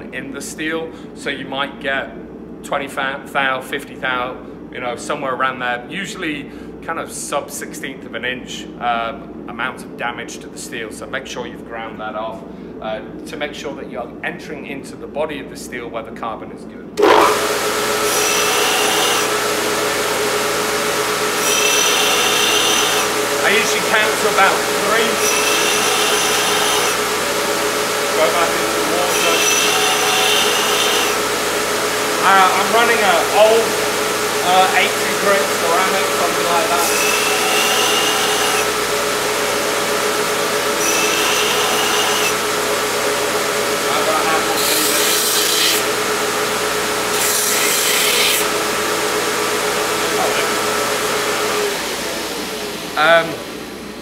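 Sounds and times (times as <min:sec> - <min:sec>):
belt grinder motor running: 0:17.0 - 0:53.5
high grinding whine of steel: 0:17.0 - 0:54.0.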